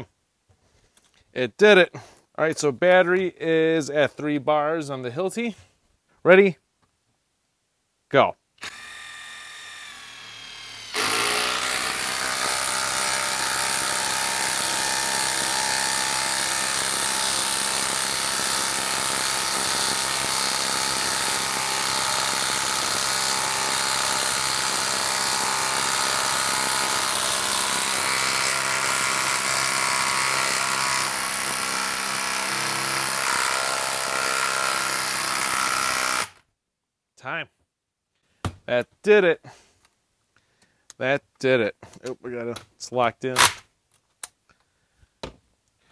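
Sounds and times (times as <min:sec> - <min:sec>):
impact driver hammering: 0:10.8 - 0:36.4.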